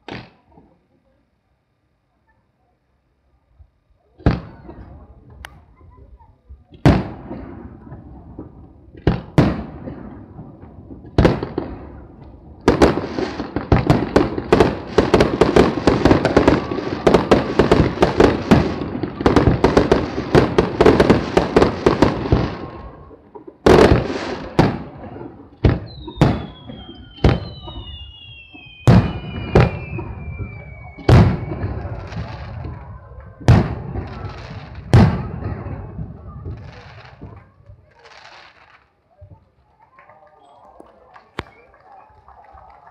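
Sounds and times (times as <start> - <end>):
fireworks bursting with bangs: 0.0 - 0.7, 4.1 - 39.5
rapid crackling fireworks: 4.0 - 42.9
falling firework whistles: 25.7 - 32.9.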